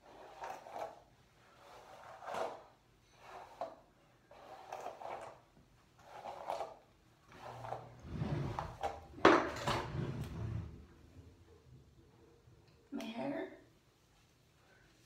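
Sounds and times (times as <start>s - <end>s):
hairbrush brushing through hair: 0.0s - 5.4s.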